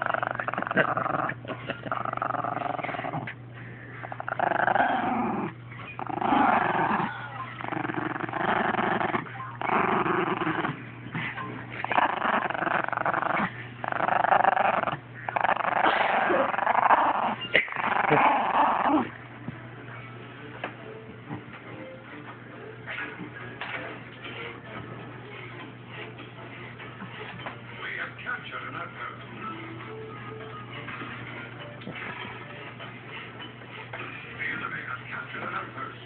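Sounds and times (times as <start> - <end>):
small dog growling: 0.0 - 3.4, 4.0 - 19.2.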